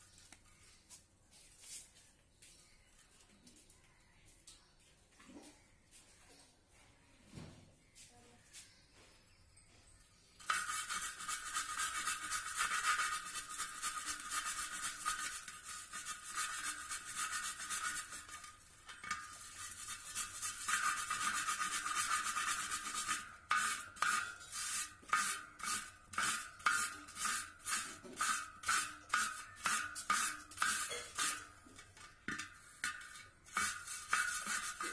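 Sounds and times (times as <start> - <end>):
brush scraping rust off metal: 10.4 - 34.9.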